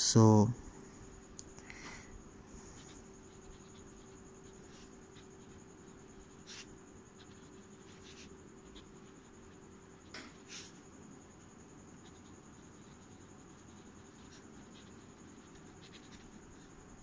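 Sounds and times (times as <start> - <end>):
faint hum and high whine: 0.0 - 17.0
pen nib scratching on paper: 2.8 - 10.8, 12.0 - 16.7.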